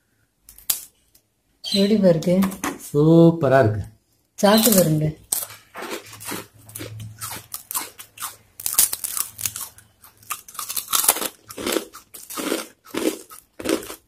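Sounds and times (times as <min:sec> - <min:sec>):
crunching crisp cookies: 0:04.4 - 0:14.0.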